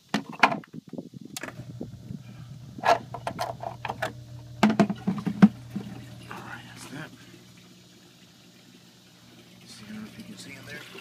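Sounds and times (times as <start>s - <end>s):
pump humming: 1.3s - 11.0s
plastic bucket and lid knocking: 2.8s - 5.9s.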